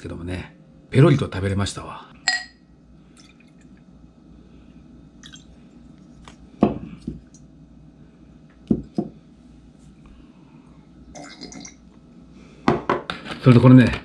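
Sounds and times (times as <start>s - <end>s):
glass clinks: 2.3s - 2.6s
liquid trickling into a glass: 3.2s - 3.8s, 5.2s - 5.6s, 11.1s - 11.8s
dull knocks on a table: 12.7s - 13.2s.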